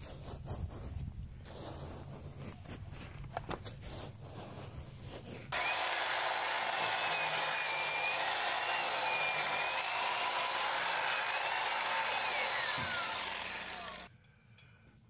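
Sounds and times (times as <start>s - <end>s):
knife scraping hide: 0.0s - 5.6s
electric saw cutting: 5.5s - 14.1s.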